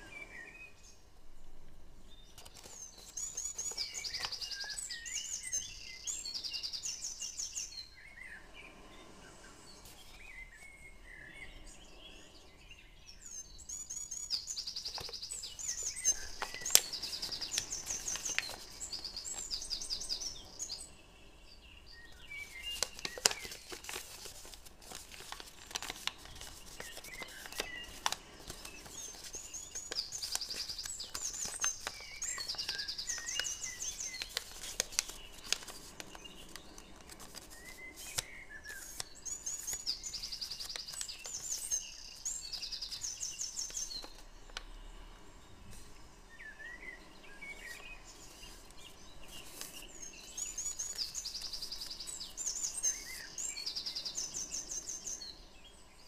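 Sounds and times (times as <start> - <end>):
birds chirping in trills: 1.8 - 56.0
paper crinkling as it is folded: 2.3 - 5.6, 14.6 - 20.7, 22.3 - 44.6, 47.6 - 53.3.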